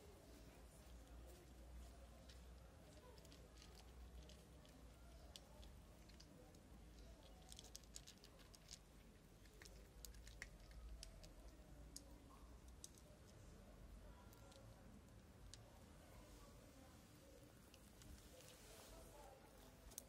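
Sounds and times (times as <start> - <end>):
cats crunching dry kibble: 2.3 - 12.1.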